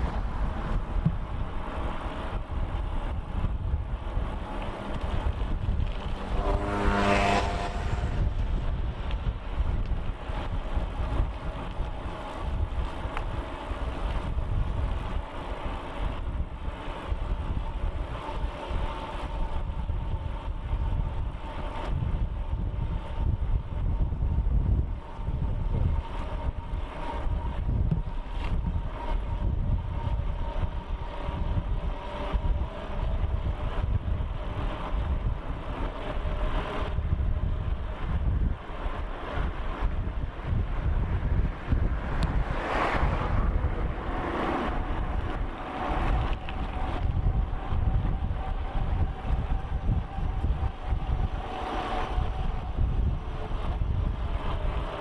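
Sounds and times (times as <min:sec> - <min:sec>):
tyres on asphalt: 0:00.0 - 0:55.0
wind over microphone: 0:00.0 - 0:55.0
electric motor whine: 0:05.8 - 0:08.7.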